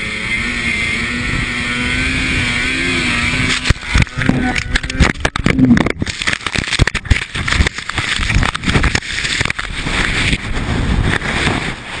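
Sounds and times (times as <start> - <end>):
avalanche snow rushing and scraping: 2.3 - 12.0.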